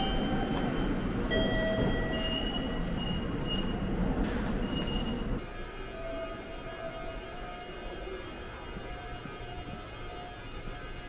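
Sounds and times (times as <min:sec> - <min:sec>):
ticket gate beeps: 0:00.0 - 0:04.0.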